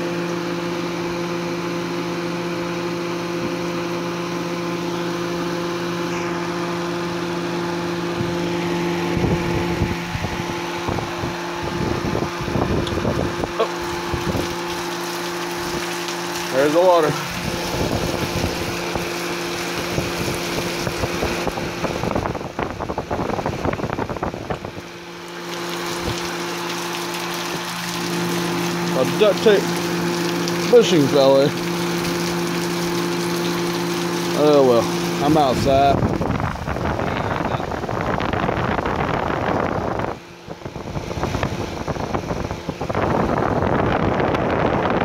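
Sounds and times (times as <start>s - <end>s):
electric fan motor hum: 0.0s - 45.0s
water splashing from hose: 4.6s - 40.1s.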